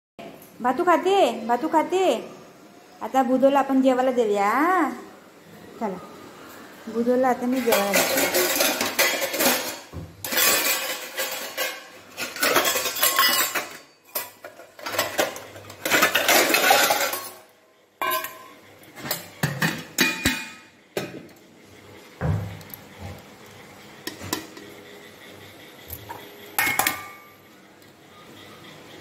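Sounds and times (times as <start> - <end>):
steel bowls and utensils clattering: 7.5 - 21.2, 25.9 - 27.4.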